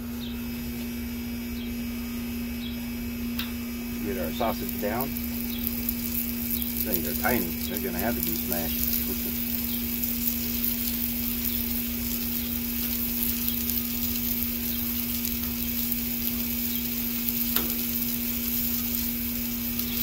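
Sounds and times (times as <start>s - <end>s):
steady low hum: 0.0s - 20.0s
sausage patties sizzling on griddle: 3.6s - 20.0s.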